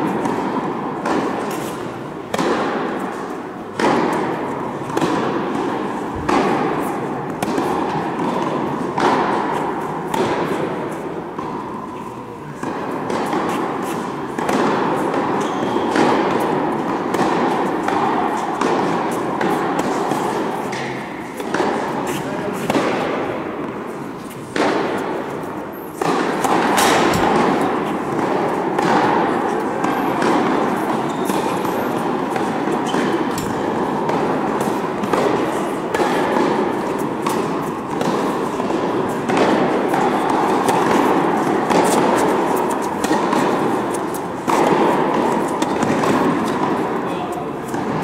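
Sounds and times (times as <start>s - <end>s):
indoor hall background noise: 0.0s - 48.0s
racket striking tennis ball: 0.0s - 48.0s
tennis ball bouncing: 0.0s - 48.0s.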